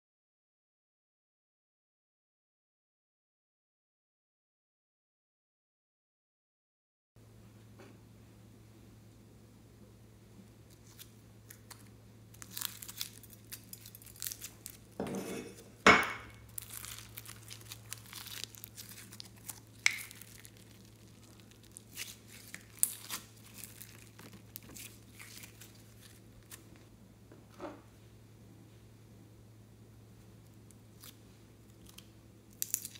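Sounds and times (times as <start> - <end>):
slime crackling and popping: 10.7 - 15.0, 16.3 - 26.8, 30.7 - 32.9.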